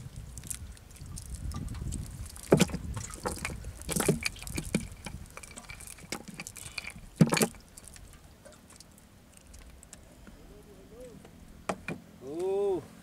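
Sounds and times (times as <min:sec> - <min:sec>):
wet net rustling: 0:00.0 - 0:10.0.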